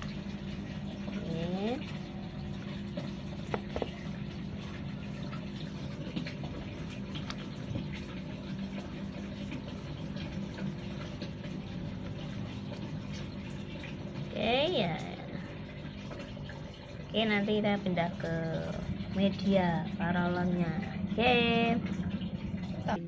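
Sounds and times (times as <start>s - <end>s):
low hum: 0.0s - 23.0s
water trickling: 0.0s - 23.0s.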